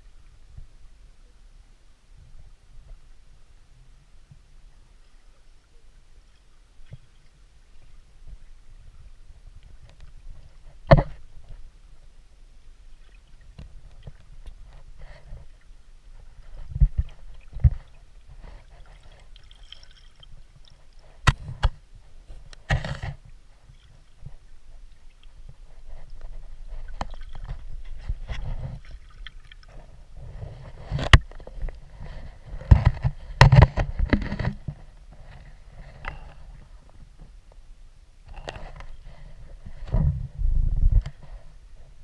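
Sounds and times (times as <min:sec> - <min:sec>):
low water rumble: 0:00.0 - 0:42.0
knocks and scrapes against stones: 0:21.0 - 0:23.3, 0:25.7 - 0:28.9, 0:29.7 - 0:37.0.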